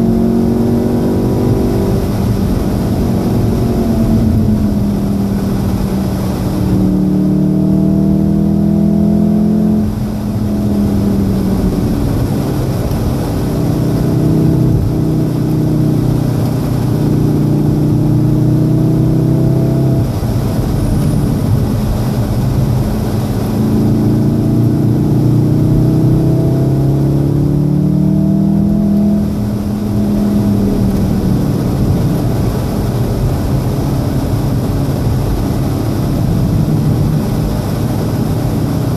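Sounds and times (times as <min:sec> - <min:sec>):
car engine accelerating: 0:00.0 - 0:38.9
tyre and road noise hissing: 0:20.0 - 0:25.8, 0:29.2 - 0:38.9.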